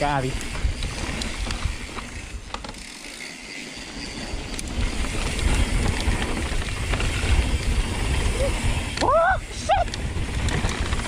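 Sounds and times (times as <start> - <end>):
bike tyres rattling over stones: 0.0 - 11.0
wind on microphone: 4.2 - 11.0.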